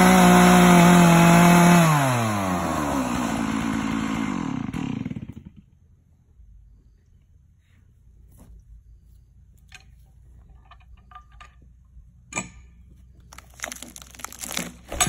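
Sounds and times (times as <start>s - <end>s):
chainsaw idling: 0.0s - 5.8s
crackling rustling noise: 13.2s - 15.0s.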